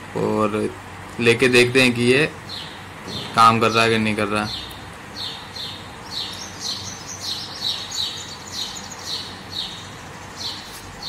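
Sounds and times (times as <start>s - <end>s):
small bird chirping: 2.4s - 11.0s.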